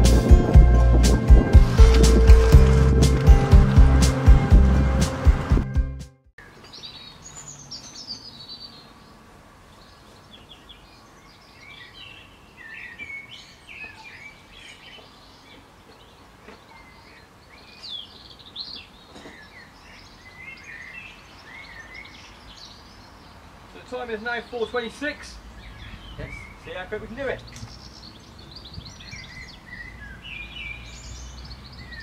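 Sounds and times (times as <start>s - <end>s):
faint outdoor background: 0.0s - 32.0s
songbirds chirping and singing: 6.4s - 32.0s.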